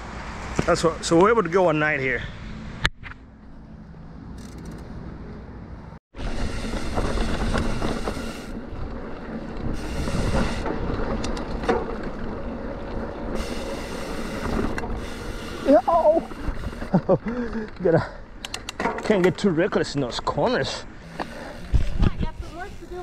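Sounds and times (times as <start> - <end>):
bike tyres and rattling on dirt: 4.3 - 5.0, 6.1 - 23.0
wind rushing over microphone: 6.2 - 16.9, 21.6 - 23.0.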